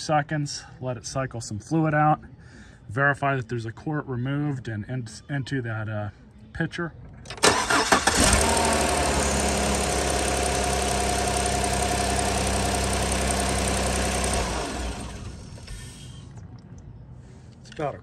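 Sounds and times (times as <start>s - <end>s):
truck engine starting and idling: 7.2s - 16.5s.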